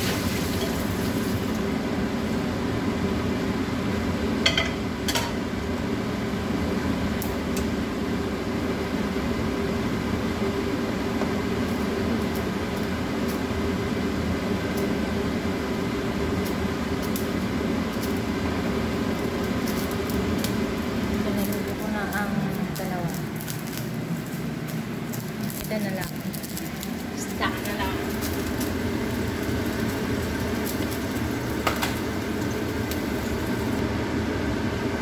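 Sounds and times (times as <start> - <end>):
fan whirring: 0.0 - 35.0.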